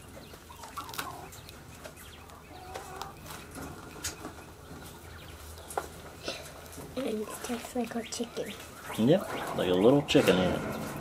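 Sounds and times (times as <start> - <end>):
poultry clucking: 0.0 - 11.0.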